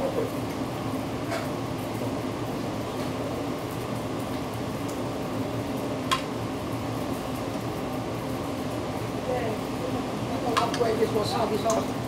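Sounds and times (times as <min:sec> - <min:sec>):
griddle sizzling: 0:00.0 - 0:12.0
ventilation hum: 0:00.0 - 0:12.0.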